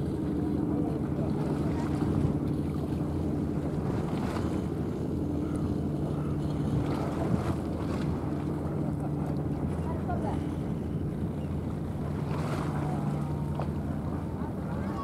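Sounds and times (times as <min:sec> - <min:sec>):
lapping sea water: 0:00.0 - 0:15.0
wind buffeting microphone: 0:00.0 - 0:15.0.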